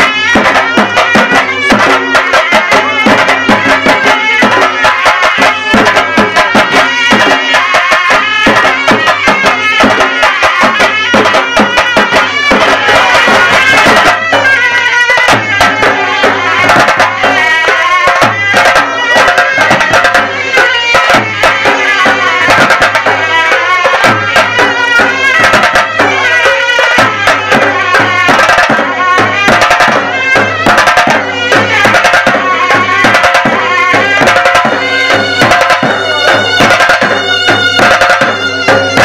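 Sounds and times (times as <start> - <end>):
fast dense drumming: 0.0 - 39.0
sustained melody line: 32.4 - 39.0.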